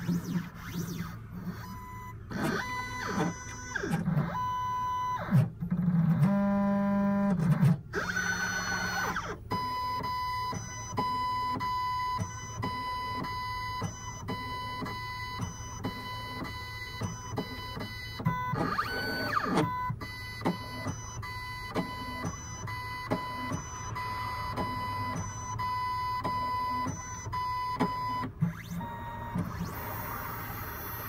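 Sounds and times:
stepper motors whining: 8.0 - 9.4, 17.0 - 31.0.

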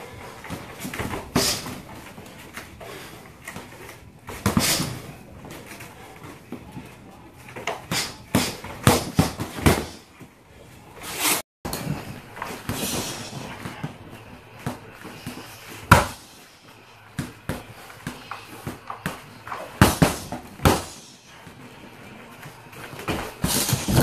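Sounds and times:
punches and kicks hitting bag: 8.0 - 10.0, 15.8 - 16.3, 19.7 - 21.0.

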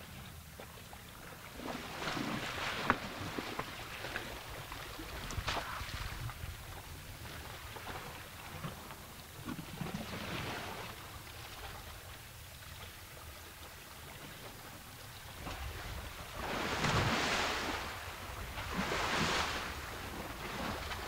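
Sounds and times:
mud and water slopping: 1.3 - 11.8, 15.3 - 21.0
elephant splashing in mud: 16.4 - 19.9.

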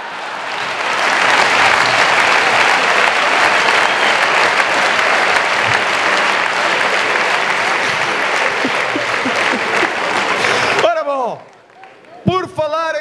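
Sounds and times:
audience applauding: 0.0 - 12.3
audience laughing: 4.5 - 10.8.

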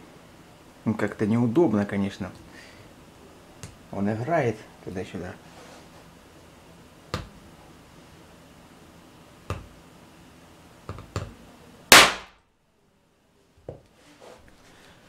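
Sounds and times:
primer going off with sharp bang: 11.9 - 12.4.

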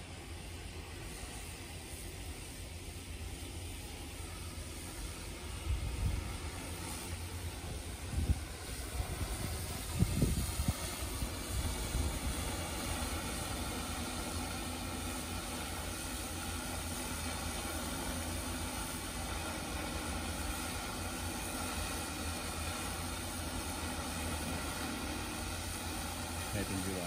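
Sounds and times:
drone whirring hum: 0.0 - 18.0.

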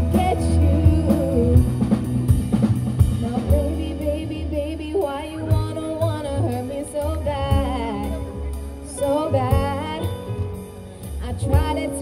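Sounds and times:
woman singing with vibrato: 0.0 - 2.0, 3.1 - 10.3, 11.2 - 12.0
double bass: 0.0 - 12.0
drum kit: 0.0 - 12.0
keyboard: 0.0 - 12.0.

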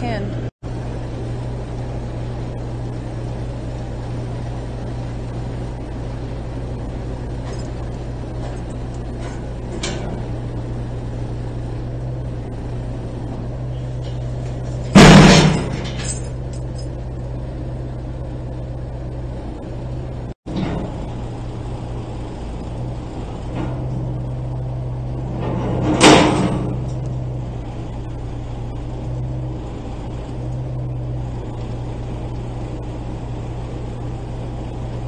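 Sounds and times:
truck engine running: 0.0 - 35.0
loud metallic crash: 14.7 - 16.4, 23.4 - 27.5.

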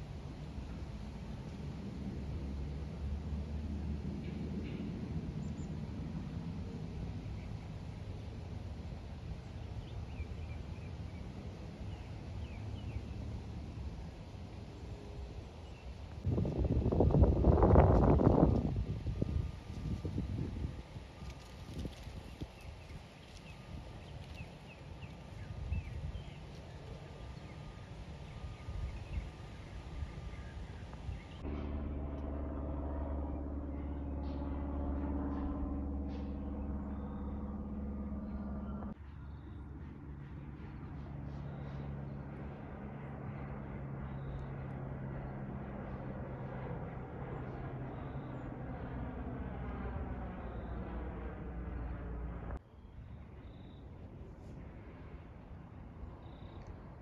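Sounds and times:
steady low rumble: 0.0 - 52.6
aircraft passing overhead: 0.0 - 57.0
small birds chirping: 21.2 - 31.4.

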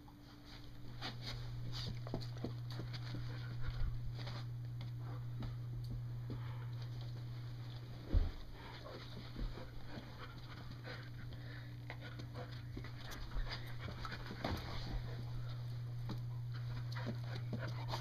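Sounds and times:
steady low hum: 0.0 - 18.0
dogs panting: 8.4 - 18.0.

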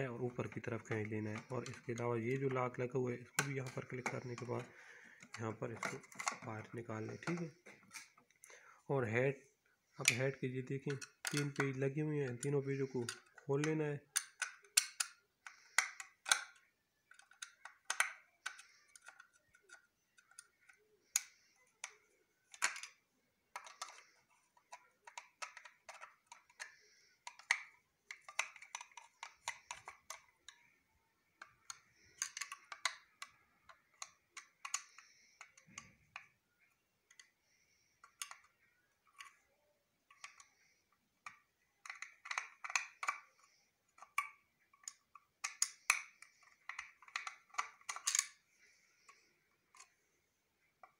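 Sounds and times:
plastic and metal clicks: 0.1 - 8.5, 9.9 - 36.4, 37.1 - 39.4, 40.1 - 50.1.

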